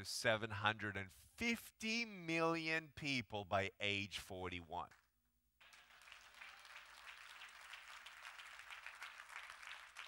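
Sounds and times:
audience applauding: 5.6 - 10.0.

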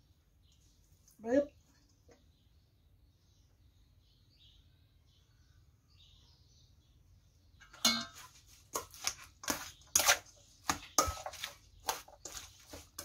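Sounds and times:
metal spoon scraping steel bowl: 7.8 - 13.0.

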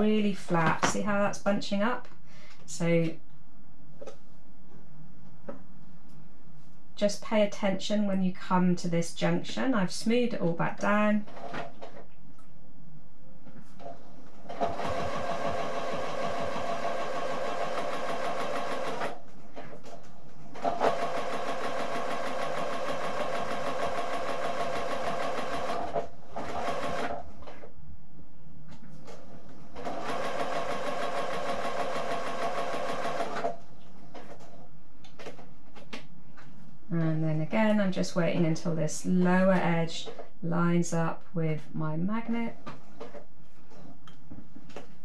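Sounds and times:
sewing machine stitching: 14.5 - 19.2, 20.6 - 27.2, 29.8 - 33.6.

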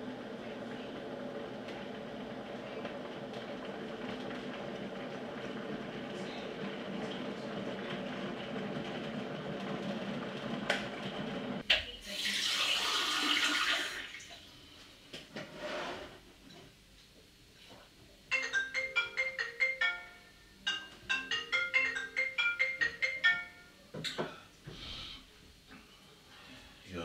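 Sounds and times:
electric kettle boiling: 0.0 - 14.5
marimba-like tune: 18.3 - 23.8.

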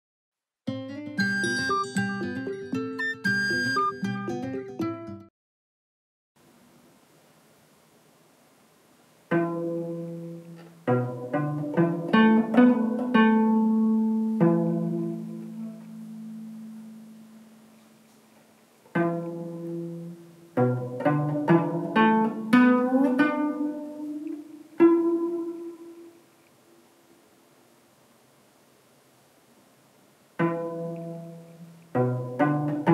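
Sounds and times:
cello plucked notes: 0.7 - 5.2, 9.3 - 18.1, 18.9 - 26.4, 30.4 - 32.9.

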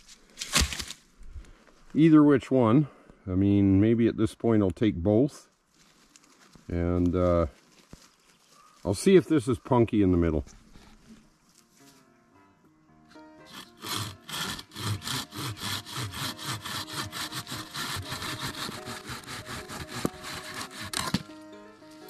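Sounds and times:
hand saw cutting branch: 13.5 - 21.3.

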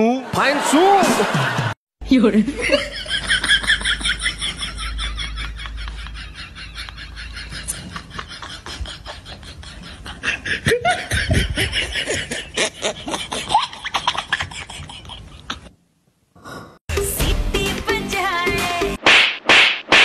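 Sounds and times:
person laughing: 2.7 - 15.8
music: 16.9 - 19.0.

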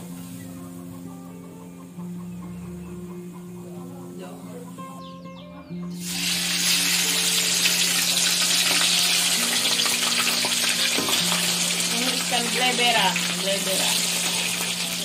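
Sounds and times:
fish deep-frying in hot oil: 6.0 - 15.0.

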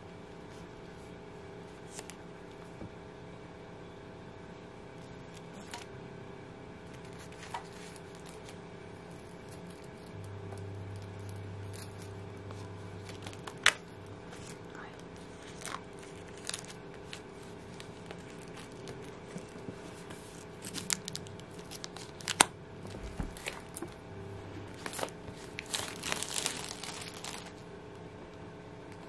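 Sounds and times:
plastic wrap crinkling and tearing: 6.8 - 10.3, 10.9 - 24.0, 24.7 - 27.6
plastic wrap snapping: 13.0 - 14.6, 15.4 - 19.7, 20.4 - 24.0, 24.7 - 27.6.

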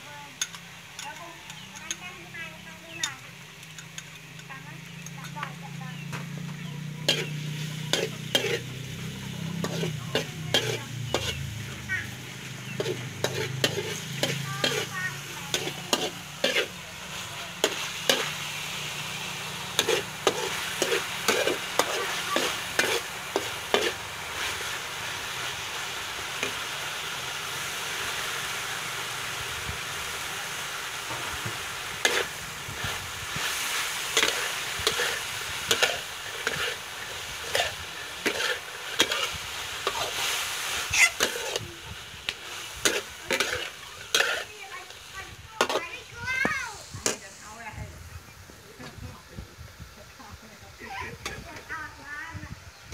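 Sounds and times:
meat sizzling in a pan: 0.0 - 52.9
metal spatula scraping a wok: 7.0 - 26.7, 30.5 - 46.2.

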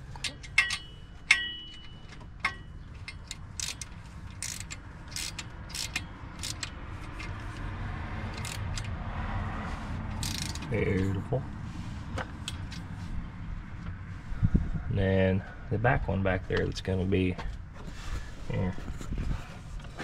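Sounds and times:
socket wrench ratcheting: 0.2 - 7.6, 8.3 - 8.9, 10.2 - 10.8
metal wrench clinks: 0.3 - 7.2.

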